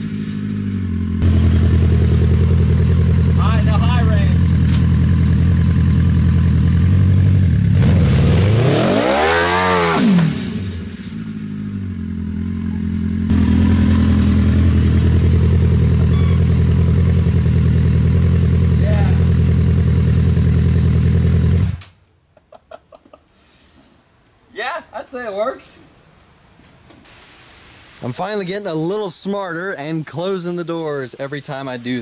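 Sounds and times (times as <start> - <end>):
motorcycle engine idling and revving: 0.0 - 21.9.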